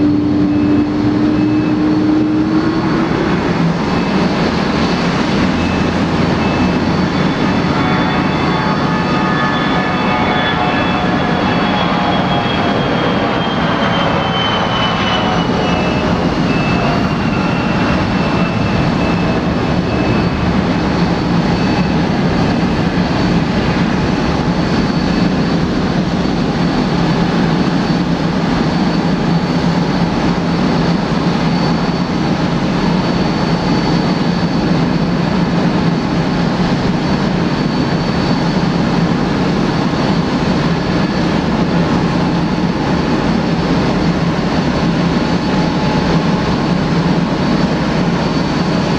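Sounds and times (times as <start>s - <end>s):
jet engines rushing and whining: 0.0s - 48.9s.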